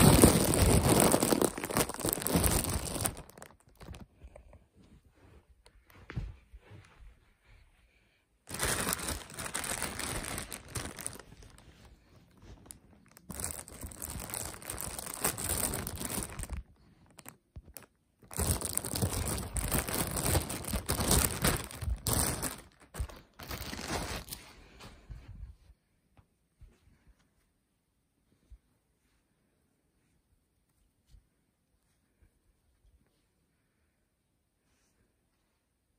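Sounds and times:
plastic bag crinkling: 0:00.0 - 0:04.4, 0:08.5 - 0:24.4.

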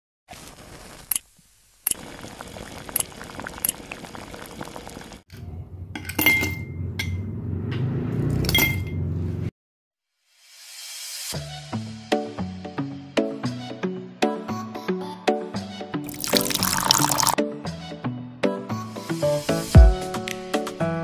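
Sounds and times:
music: 0:10.5 - 0:21.0
ice cubes clinking in glass: 0:16.1 - 0:17.4.

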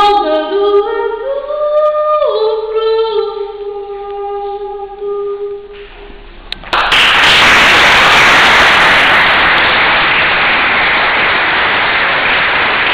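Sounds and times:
audience applause: 0:06.7 - 0:12.9.

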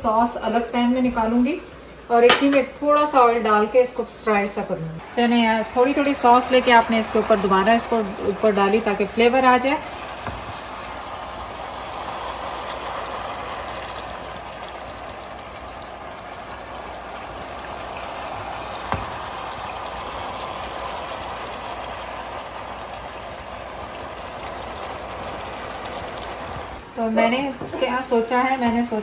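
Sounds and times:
sauce bubbling in a frying pan: 0:05.0 - 0:26.8.

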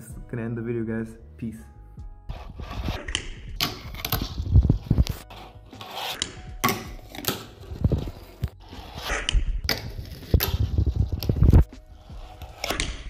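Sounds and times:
board scraping on ledge: 0:03.8 - 0:06.4, 0:07.0 - 0:13.0.

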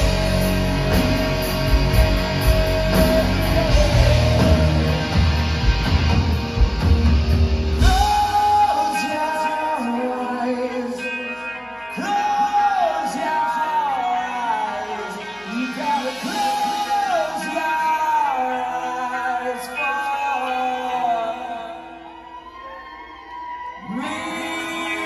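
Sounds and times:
live hard rock band: 0:00.0 - 0:25.0.

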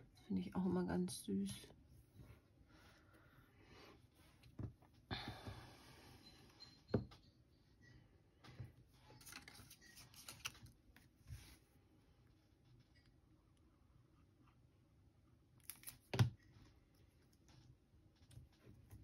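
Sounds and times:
card pieces rustling: 0:09.2 - 0:10.8.

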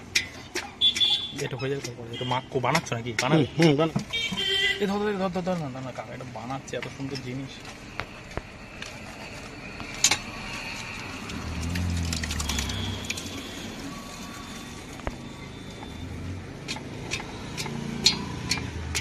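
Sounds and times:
motor vehicle passing: 0:10.4 - 0:14.8, 0:16.1 - 0:19.0.

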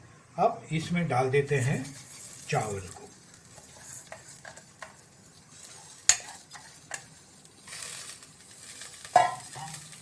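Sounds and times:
grains shifting hiss: 0:00.5 - 0:10.0
metal spoon scraping a pan: 0:01.5 - 0:10.0
spoon tapping against pan: 0:06.1 - 0:07.1.

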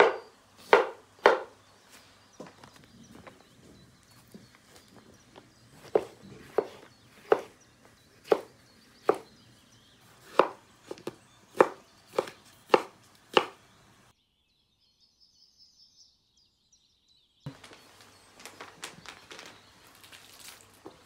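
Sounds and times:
knife chopping on cutting board: 0:00.0 - 0:01.6, 0:05.8 - 0:07.6, 0:08.2 - 0:09.3, 0:10.2 - 0:13.6
faint high chirping: 0:00.0 - 0:21.0.

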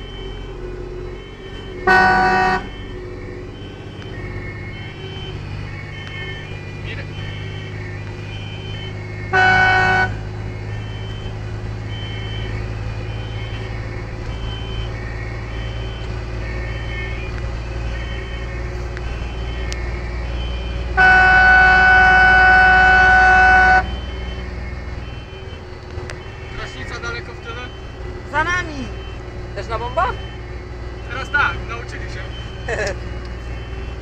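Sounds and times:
truck engine running: 0:00.0 - 0:34.0
two-tone siren: 0:00.0 - 0:34.0
air horn blasts: 0:01.2 - 0:02.8, 0:09.3 - 0:10.2, 0:20.9 - 0:23.9.

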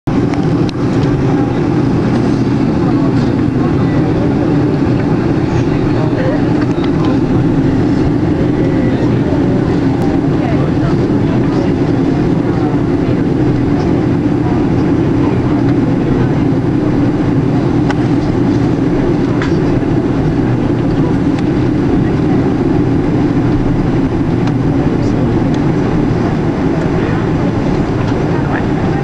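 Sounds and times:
jet engines at low thrust: 0:00.1 - 0:29.0.

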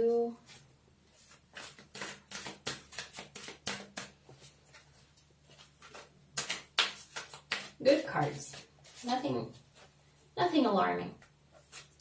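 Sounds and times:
cards tapping and flicking: 0:01.3 - 0:04.9, 0:05.5 - 0:09.0.

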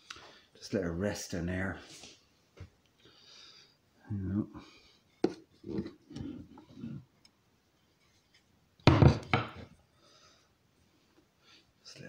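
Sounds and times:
axe rubbing and shifting: 0:05.2 - 0:07.1
wooden knocks on tabletop: 0:08.8 - 0:09.6.

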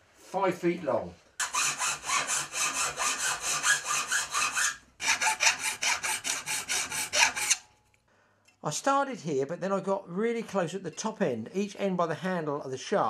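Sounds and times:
hand file rasping on saw teeth: 0:01.4 - 0:07.6.

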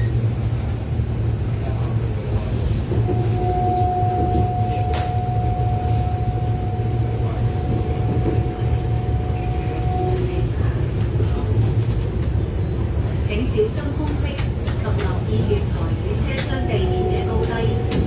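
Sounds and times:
train low rumble: 0:00.0 - 0:18.0.

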